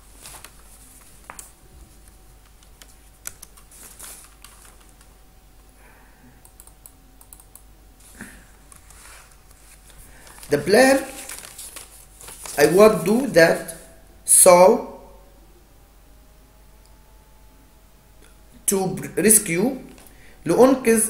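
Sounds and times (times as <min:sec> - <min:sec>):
keyboard keystrokes: 0:02.4 - 0:03.6, 0:06.4 - 0:07.7.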